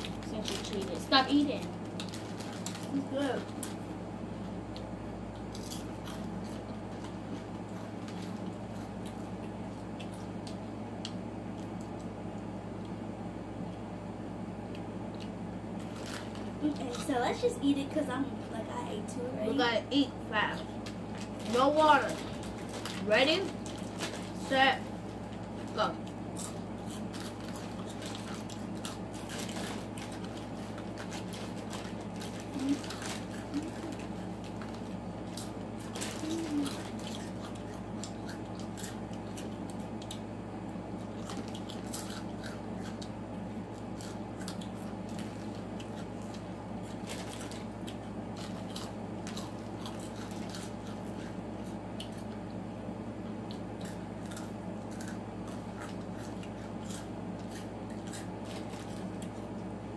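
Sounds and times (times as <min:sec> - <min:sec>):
snack bag crinkling: 0:00.0 - 0:03.9, 0:15.1 - 0:17.4, 0:20.6 - 0:40.3, 0:40.9 - 0:43.1, 0:43.7 - 0:52.6, 0:53.4 - 0:59.8
chips being chewed: 0:00.0 - 0:13.0, 0:14.7 - 0:17.4, 0:20.6 - 0:40.3, 0:40.9 - 0:52.6, 0:53.3 - 0:59.8
steady hum: 0:00.0 - 0:59.9.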